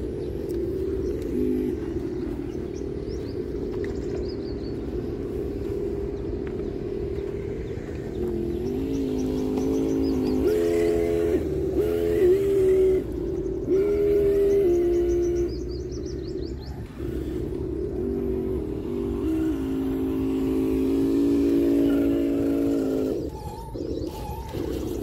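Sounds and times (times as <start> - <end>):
birds chirping faintly: 0.0 - 25.0
toy truck motor drone: 7.4 - 16.0, 16.7 - 25.0.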